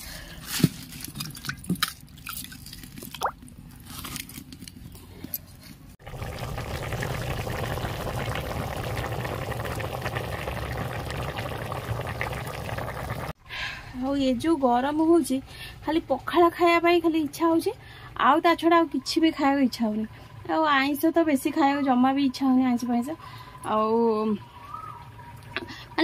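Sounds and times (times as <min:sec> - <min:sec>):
water pouring: 0:06.0 - 0:13.4.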